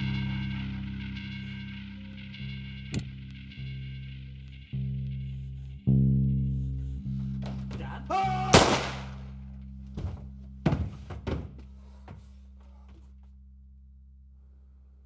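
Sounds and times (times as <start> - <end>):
low heavy soundtrack chords: 0.0 - 9.9
rising shout: 7.8 - 9.0
knocks and thuds: 9.9 - 12.4.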